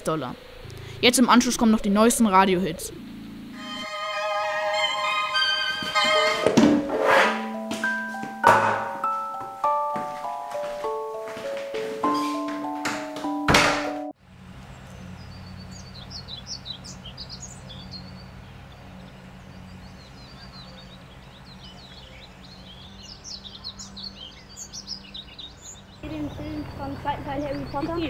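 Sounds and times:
steady low hum: 0.0s - 3.8s
songbirds chirping: 9.1s - 13.4s, 14.2s - 28.0s.

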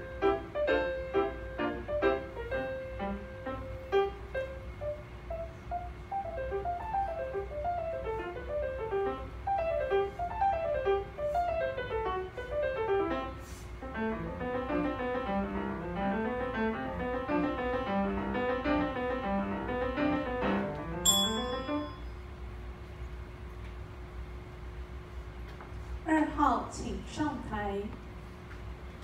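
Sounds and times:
classical grand piano: 0.0s - 22.0s.

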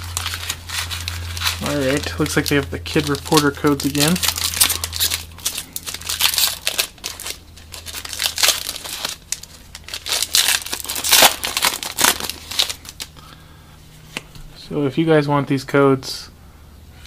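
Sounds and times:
foil card pack tearing and crinkling: 0.0s - 13.1s.

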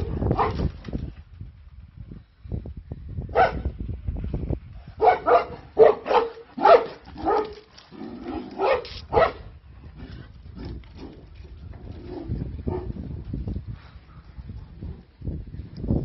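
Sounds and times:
dog barking: 3.4s - 3.6s, 5.0s - 7.6s, 8.6s - 9.4s.

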